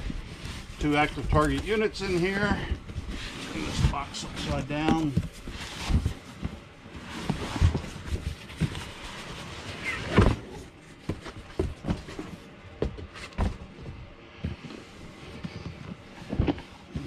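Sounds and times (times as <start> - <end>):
cardboard rustling and scraping: 0.0 - 17.0.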